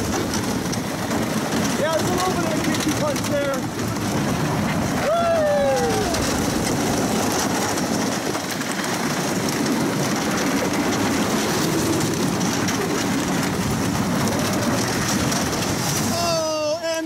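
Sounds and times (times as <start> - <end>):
roller coaster wheels clattering: 0.0 - 17.0.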